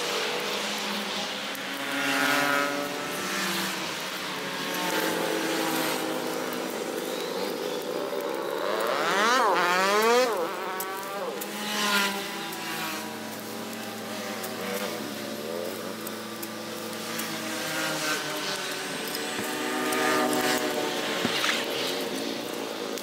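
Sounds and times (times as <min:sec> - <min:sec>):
brush cutter engine revving: 0:08.2 - 0:23.0.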